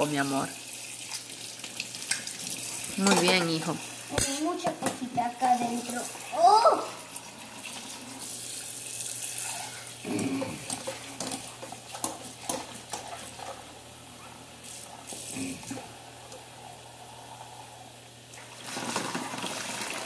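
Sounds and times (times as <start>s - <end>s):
faucet running into saucepan: 0.0s - 13.7s, 18.3s - 20.0s.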